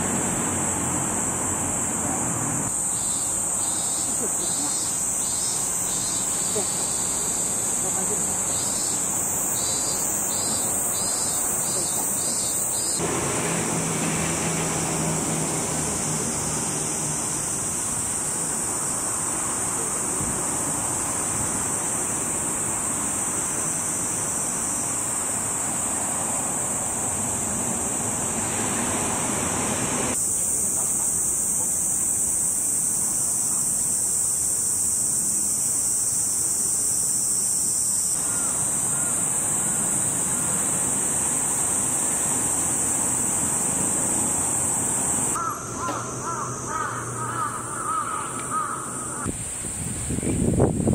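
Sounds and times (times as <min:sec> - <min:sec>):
cicadas droning: 0:00.0 - 0:50.9
broad rushing noise: 0:10.6 - 0:30.2.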